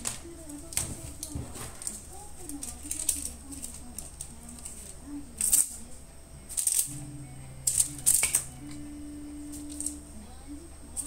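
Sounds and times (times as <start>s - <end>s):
cloth rustling and rattling: 0.0s - 5.7s
soft background music: 4.6s - 11.0s.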